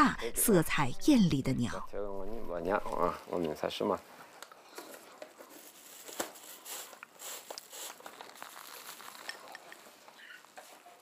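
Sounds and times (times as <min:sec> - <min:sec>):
soft crinkling and rustling: 0:02.8 - 0:11.0.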